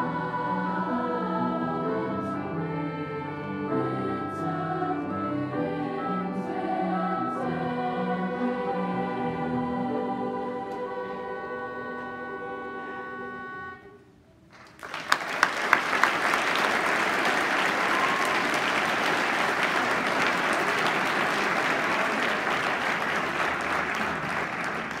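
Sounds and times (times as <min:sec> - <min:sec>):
choir holding chord: 0:00.0 - 0:14.1
audience applauding: 0:14.5 - 0:25.0.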